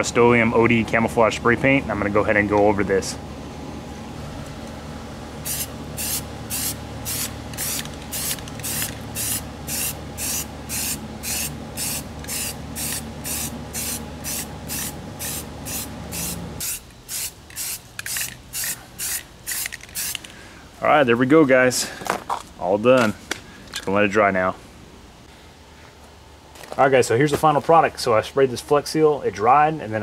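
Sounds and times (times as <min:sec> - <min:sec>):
spray paint can hissing: 0:05.4 - 0:20.2.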